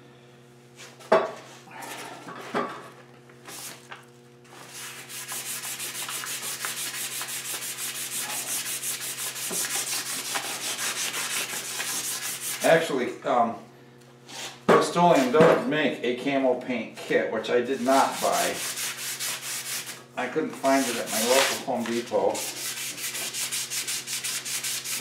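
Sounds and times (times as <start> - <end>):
abrasive paper rubbing metal: 4.6 - 12.9, 17.7 - 20.0, 20.6 - 25.0.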